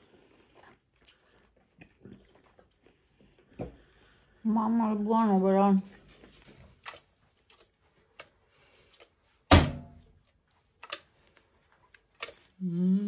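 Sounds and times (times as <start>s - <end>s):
loud ringing thunk: 9.5s - 10.0s.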